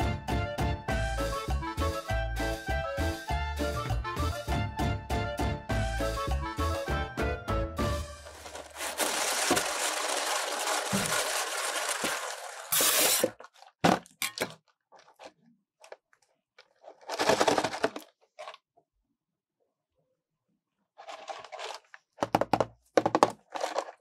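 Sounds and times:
cardboard box crackling: 0:08.2 - 0:13.3.

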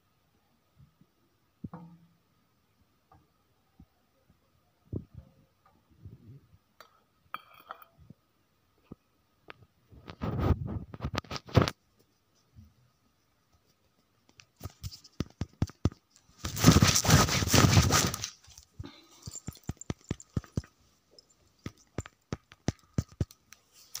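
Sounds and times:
cloth rustling against microphone: 0:09.9 - 0:12.6, 0:13.6 - 0:24.0
clicks and taps: 0:21.6 - 0:24.0.

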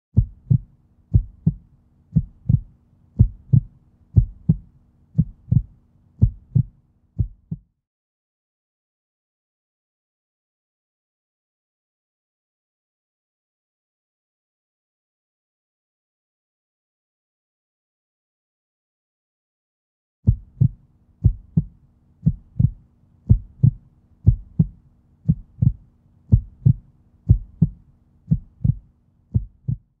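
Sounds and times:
faint steady hum: 0:00.2 - 0:07.5, 0:20.3 - 0:29.9
heartbeat thumps: 0:00.2 - 0:07.6, 0:20.3 - 0:30.0.

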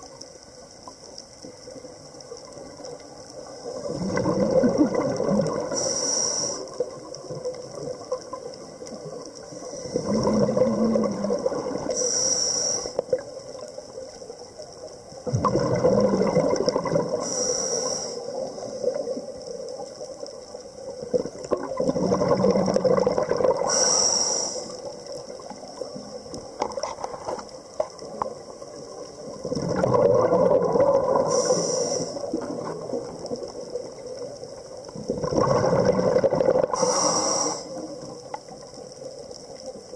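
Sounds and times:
exhaled bubbles gushing: 0:02.5 - 0:05.9, 0:06.7 - 0:12.0, 0:15.2 - 0:17.4, 0:20.8 - 0:23.8, 0:28.0 - 0:37.1
hissing regulator inhalation: 0:05.6 - 0:07.0, 0:09.5 - 0:13.2, 0:17.1 - 0:19.0, 0:23.6 - 0:25.1, 0:31.1 - 0:32.5, 0:36.6 - 0:38.0.

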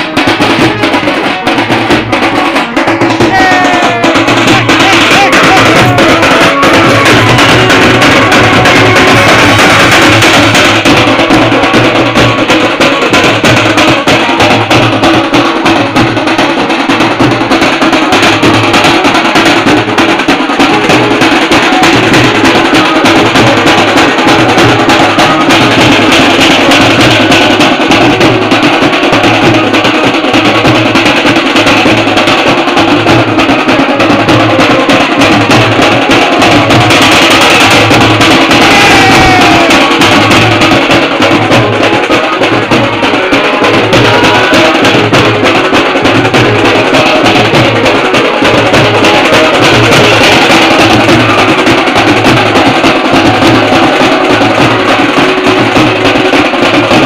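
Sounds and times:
snare drums played with sticks: 0:00.0 - 0:57.0
street drum band playing: 0:00.0 - 0:57.0
bass drum struck with beater: 0:34.0 - 0:41.8.

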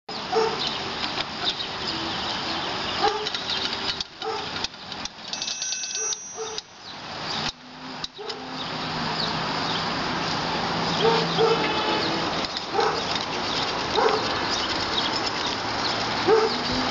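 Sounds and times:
hand crank gears clicking and rattling: 0:02.9 - 0:08.4, 0:12.0 - 0:16.9.

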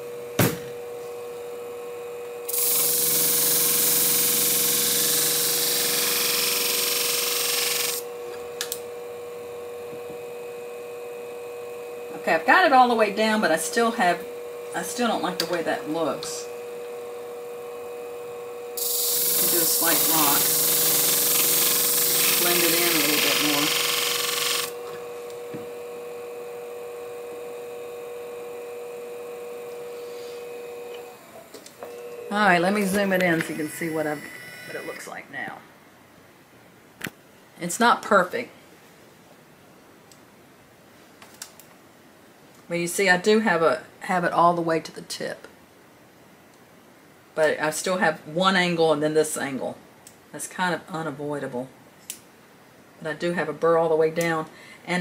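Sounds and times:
machine hum: 0:00.0 - 0:35.3
blade grinding on sharpening disc: 0:02.5 - 0:08.1, 0:18.8 - 0:24.8.

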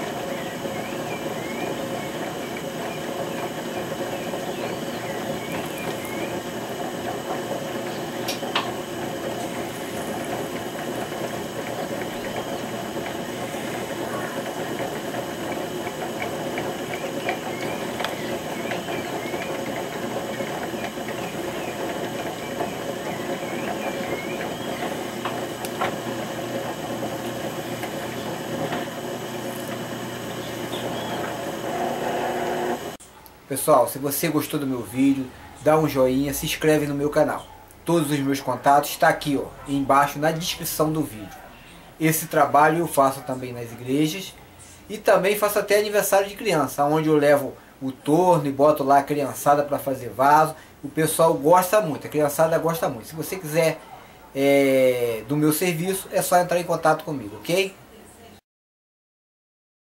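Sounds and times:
potter's wheel motor humming: 0:00.0 - 0:33.0.

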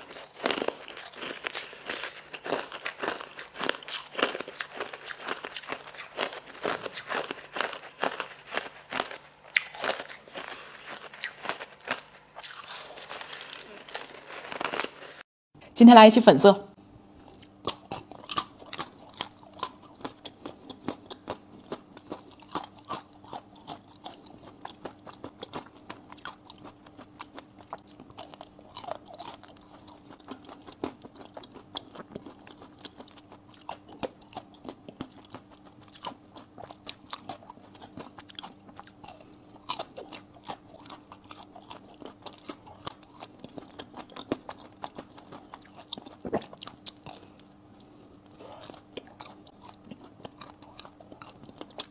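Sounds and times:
crunchy chewing: 0:00.0 - 0:15.2, 0:17.2 - 0:51.9
faint steady hum: 0:00.0 - 0:51.9.

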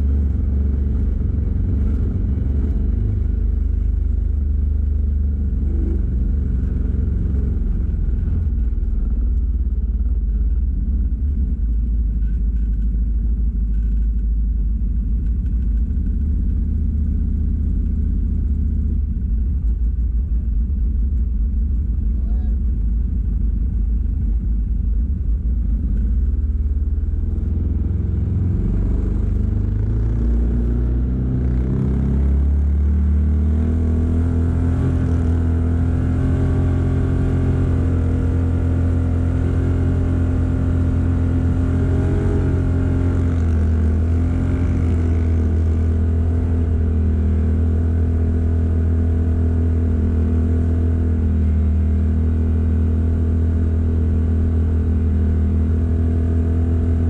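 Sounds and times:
vehicle engine pulling away: 0:26.0 - 0:57.0.

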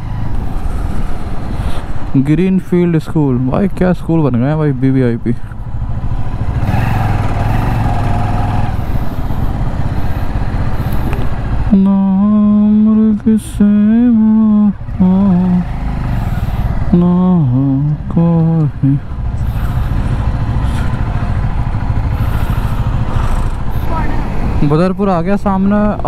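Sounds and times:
wind: 0:00.0 - 0:26.0
motorcycle engine: 0:03.4 - 0:26.0
man humming: 0:11.7 - 0:15.7, 0:16.9 - 0:19.7.

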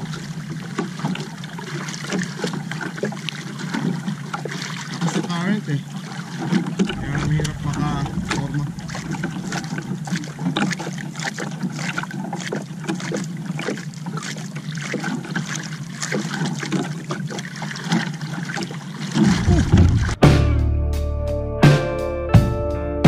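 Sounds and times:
water lapping against hull: 0:00.0 - 0:20.4
low hum: 0:06.8 - 0:11.3, 0:19.2 - 0:20.6.

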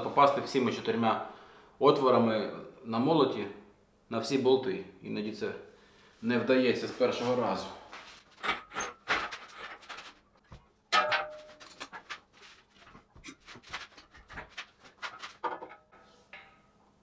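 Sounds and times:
metal clanks and knocks: 0:08.4 - 0:12.3, 0:14.4 - 0:17.0.

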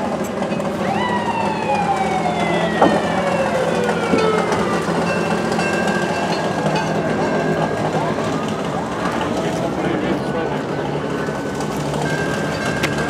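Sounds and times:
mechanical siren winding down: 0:00.5 - 0:06.6
steady higher siren tone: 0:00.6 - 0:06.7.

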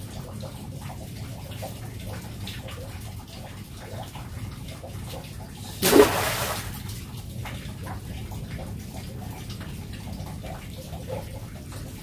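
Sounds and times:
faint drips and ticks: 0:00.0 - 0:05.8, 0:06.8 - 0:12.0
pond water sloshing: 0:05.6 - 0:08.2.

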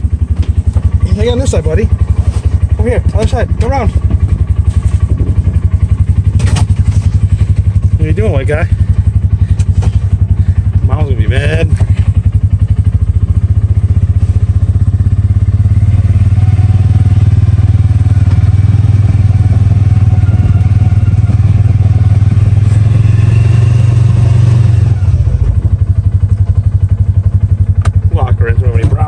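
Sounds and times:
vehicle engine throbbing: 0:00.0 - 0:29.0.

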